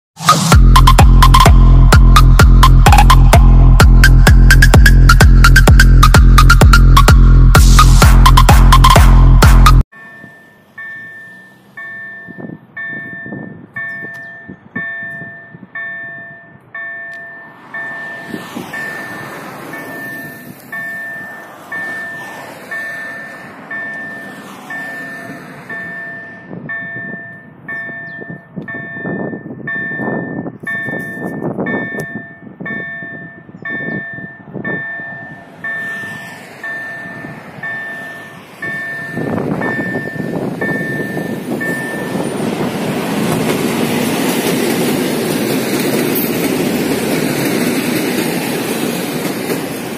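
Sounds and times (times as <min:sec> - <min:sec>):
level crossing warning bell: 0:09.9 - 0:43.4
electric train running: 0:16.8 - 0:27.8, 0:34.0 - 0:49.9.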